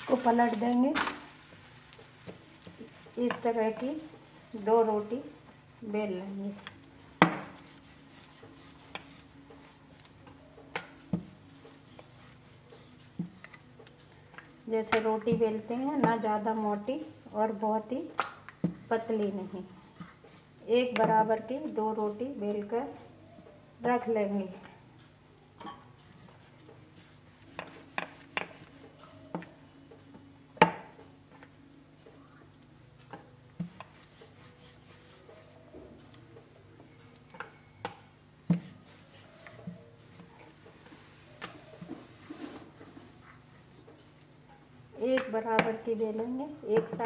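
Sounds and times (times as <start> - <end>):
rolling pin rolling dough: 0.0 - 23.1, 26.1 - 31.0, 33.0 - 47.0
rolling pin knocking on pan: 7.2 - 7.6.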